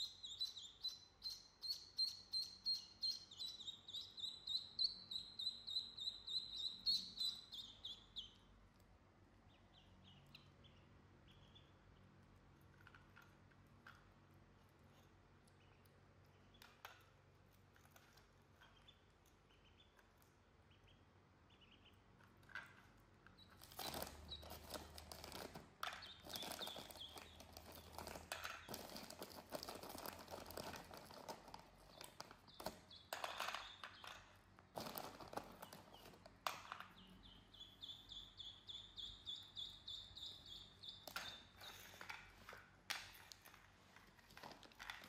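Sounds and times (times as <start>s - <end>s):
ducklings peeping: 0.0s - 8.6s, 9.3s - 13.1s, 14.0s - 22.4s, 23.3s - 34.2s, 34.8s - 36.2s, 36.8s - 42.0s
cookies rustling in plastic jar: 23.6s - 32.3s, 34.8s - 36.1s.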